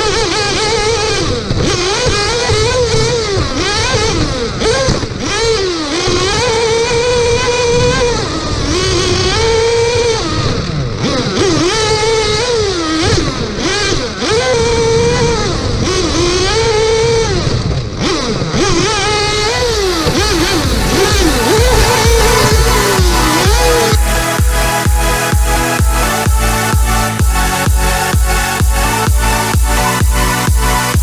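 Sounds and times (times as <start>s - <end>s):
small engine revving: 0.0s - 31.0s
tyres rushing: 19.0s - 31.0s.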